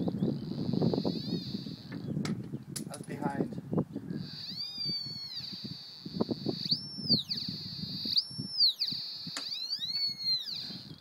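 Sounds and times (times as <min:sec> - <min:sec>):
metal detector whine: 0:04.2 - 0:11.0.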